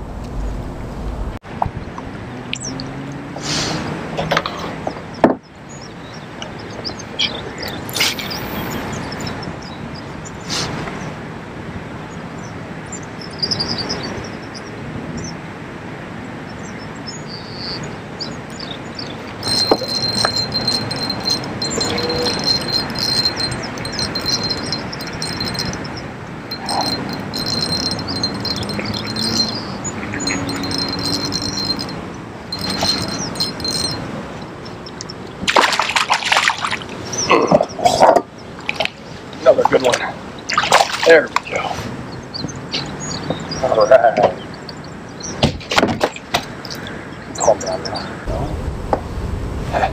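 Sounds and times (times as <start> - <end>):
birds chirping: 1.5 - 48.7
fish splashing in water: 35.4 - 37.2, 40.5 - 41.2.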